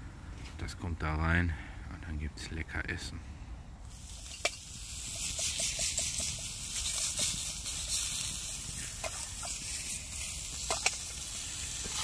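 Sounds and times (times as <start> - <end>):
sausages sizzling in a pan: 3.9 - 12.0.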